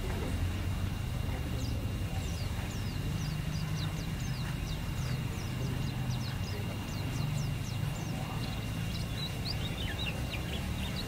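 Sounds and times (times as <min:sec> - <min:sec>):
steady low rumble: 0:00.0 - 0:11.0
bird twittering chirps: 0:01.4 - 0:11.0.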